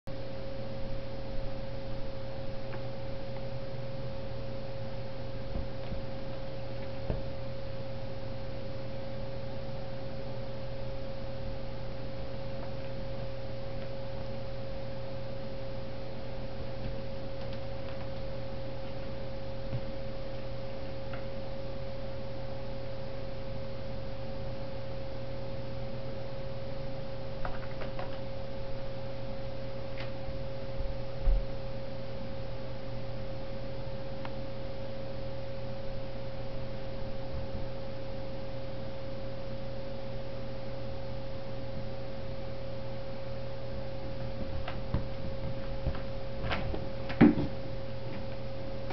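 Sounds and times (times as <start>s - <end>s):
electrical hum with high tone: 0.1s - 48.9s.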